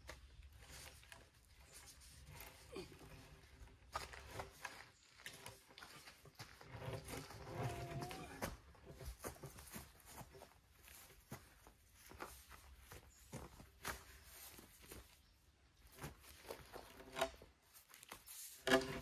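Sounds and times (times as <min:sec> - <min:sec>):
scuffing and footsteps: 0:07.6 - 0:17.0.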